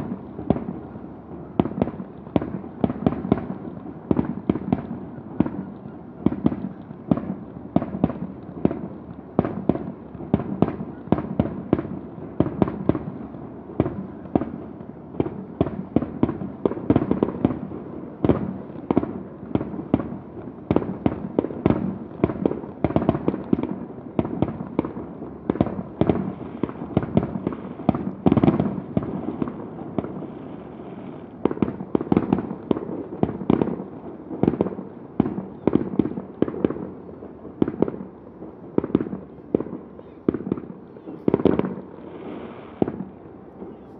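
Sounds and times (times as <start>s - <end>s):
fireworks bangs and crackles: 0.0s - 43.9s.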